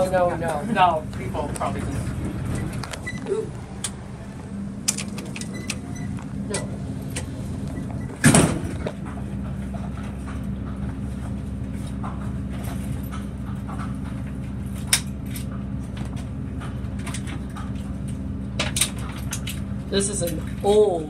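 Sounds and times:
elevator hum: 0.0s - 21.0s
loud thump: 8.2s - 8.9s.

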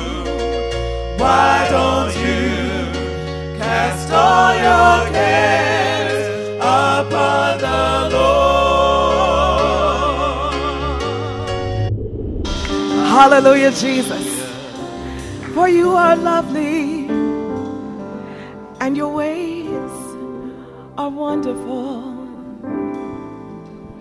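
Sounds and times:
gospel singing with vibrato: 0.0s - 11.9s, 12.5s - 22.9s
sustained low bass notes: 10.9s - 16.1s.

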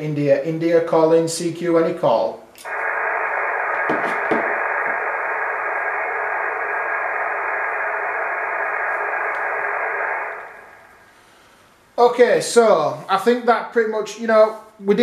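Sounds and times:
radio static hiss: 2.6s - 11.5s.

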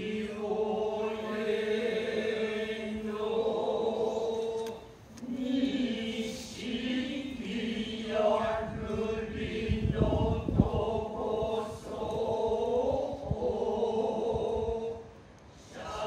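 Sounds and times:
low male voices chanting: 15.7s - 16.0s.

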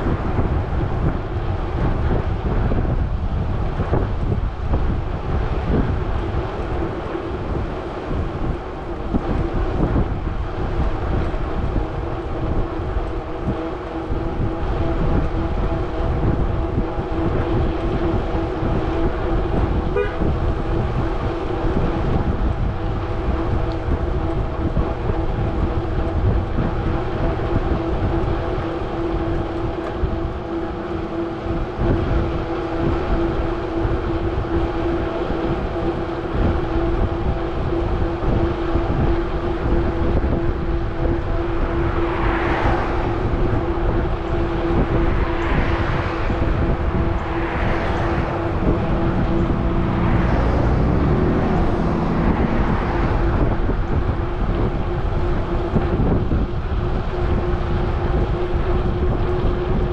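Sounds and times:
low rumble: 0.0s - 59.9s
steady hum: 0.0s - 59.9s
wind and road noise: 0.0s - 59.9s
cars passing whoosh: 40.2s - 59.9s.

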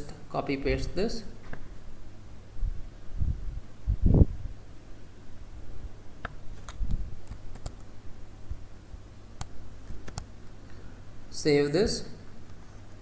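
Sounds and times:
steady low hum: 0.0s - 13.0s
mouse and keyboard clicks: 9.4s - 10.3s.

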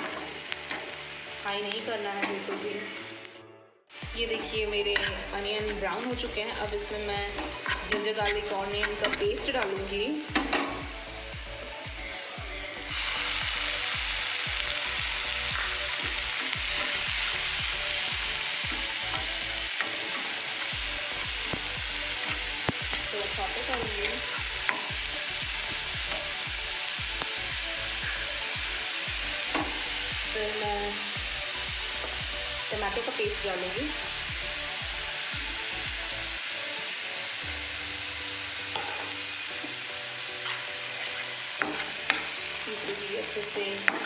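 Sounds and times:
onions sizzling in hot oil: 0.0s - 44.0s
spatula scraping pan: 38.7s - 39.2s.

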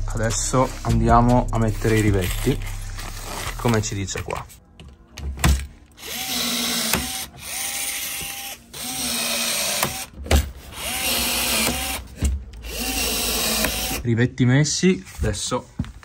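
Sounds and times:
rivet tool motor whirring: 6.0s - 10.1s, 10.7s - 12.0s, 12.6s - 14.0s.

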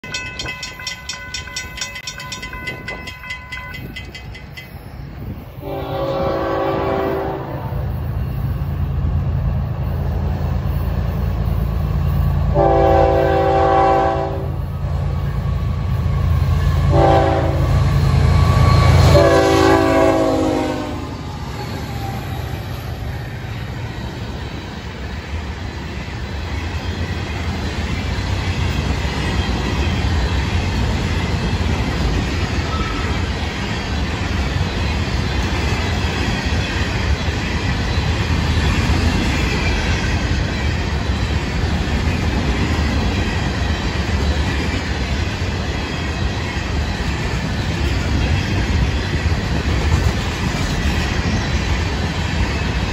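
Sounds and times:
railroad crossing bell ringing: 0.0s - 7.3s, 26.7s - 37.3s
locomotive air horn blasts: 5.6s - 7.8s, 12.5s - 14.6s, 16.9s - 17.8s, 18.8s - 21.1s.

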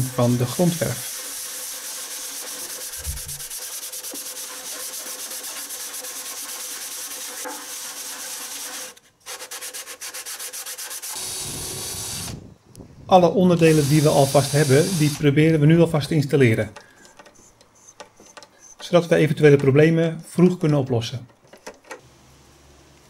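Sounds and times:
sandpaper rubbing on wood: 0.0s - 12.2s, 13.6s - 15.3s.

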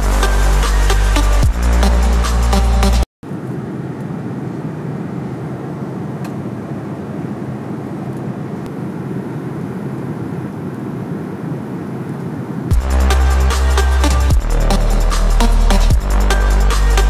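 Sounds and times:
jet engine cabin rumble: 3.3s - 12.7s.

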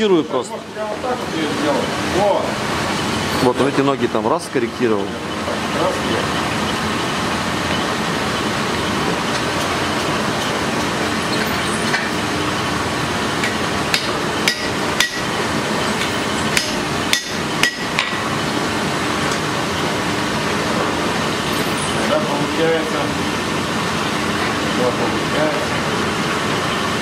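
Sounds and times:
hammer striking metal on anvil: 13.4s - 15.3s, 16.0s - 18.2s.

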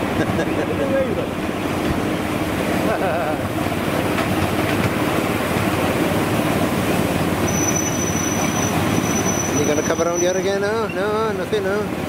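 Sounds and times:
train wheels clattering on track: 3.4s - 6.0s
high steady squeal: 7.4s - 11.1s.

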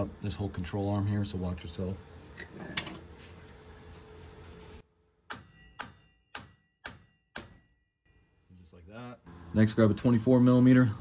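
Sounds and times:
sledgehammer striking steel: 5.2s - 7.9s
metallic ringing: 5.3s - 7.9s.

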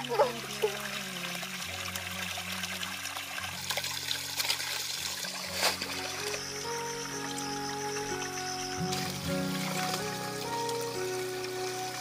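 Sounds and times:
water splashing into a pool: 0.0s - 6.5s, 8.9s - 12.0s
water pouring from a spout: 0.0s - 12.0s.

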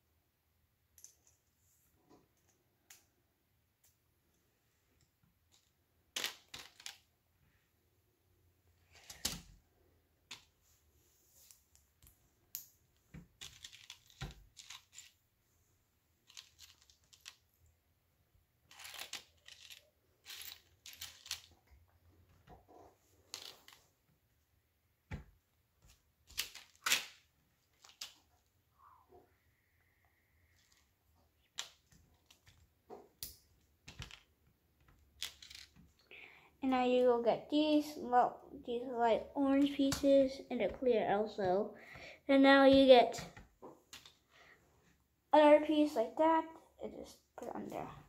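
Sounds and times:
plastic bricks clicking together: 16.3s - 17.4s, 18.7s - 21.5s.

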